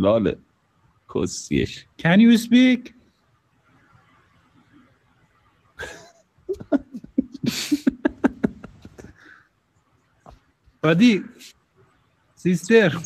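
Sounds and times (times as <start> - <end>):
person laughing: 5.8 - 9.3.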